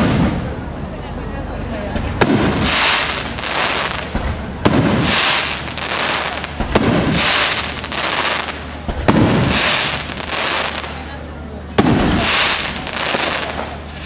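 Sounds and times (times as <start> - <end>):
fireworks bursting: 0.0 - 0.8, 2.0 - 14.0
fireworks hiss: 2.2 - 11.1, 11.8 - 14.0.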